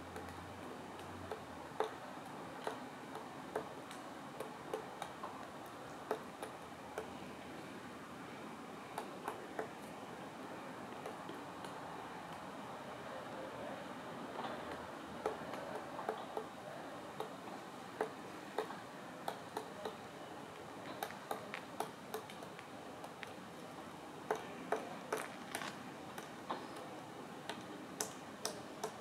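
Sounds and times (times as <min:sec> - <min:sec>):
steady background hiss: 0:00.0 - 0:29.0
woodpecker pecking tree trunk: 0:01.0 - 0:07.2, 0:08.9 - 0:09.9, 0:10.9 - 0:12.4, 0:14.5 - 0:16.6, 0:17.2 - 0:17.4, 0:18.0 - 0:20.0, 0:20.6 - 0:23.4, 0:24.2 - 0:29.0.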